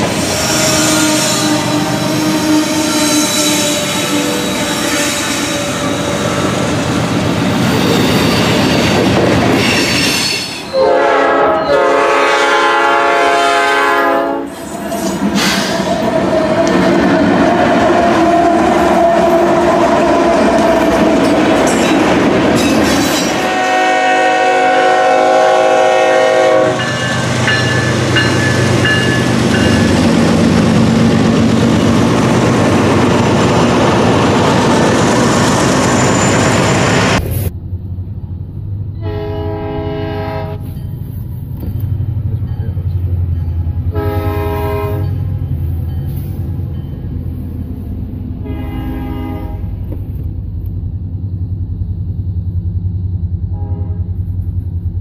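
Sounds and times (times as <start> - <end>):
locomotive air horn blasts: 0.0 - 6.3, 10.7 - 14.6, 23.3 - 27.4, 39.0 - 40.7, 43.9 - 45.2, 48.4 - 49.8, 53.5 - 54.2
freight train rumbling: 0.0 - 55.0.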